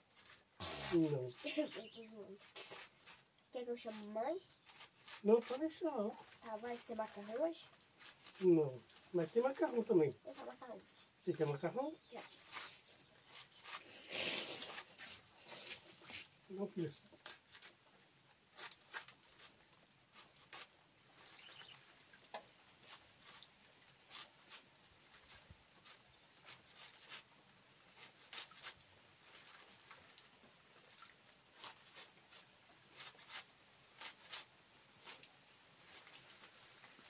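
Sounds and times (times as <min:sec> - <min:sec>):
knife slicing leaves: 0:03.9 - 0:08.5, 0:11.3 - 0:16.2, 0:18.5 - 0:19.5, 0:20.1 - 0:20.8, 0:25.2 - 0:27.3, 0:27.9 - 0:28.8, 0:31.6 - 0:35.2.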